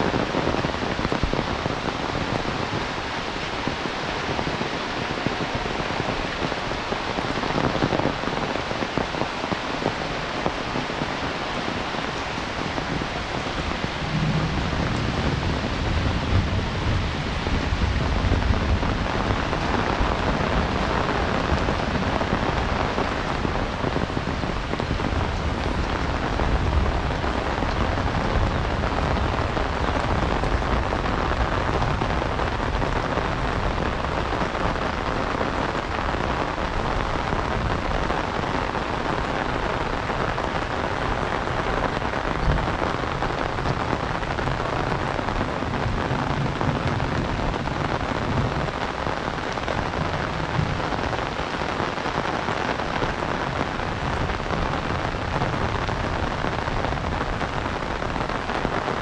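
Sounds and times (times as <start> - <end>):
heavy rain falling: 0.0 - 59.0.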